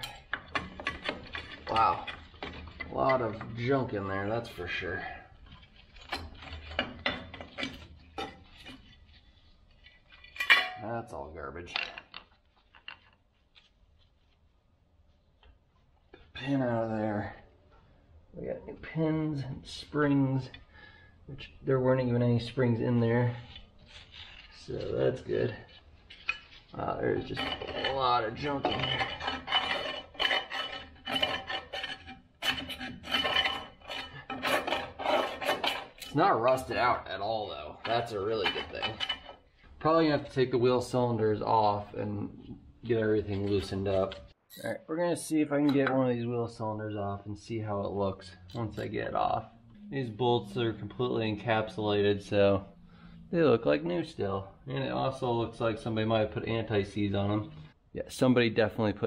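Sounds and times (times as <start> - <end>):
metal clicks and scrapes: 0.0 - 10.9, 22.9 - 40.4.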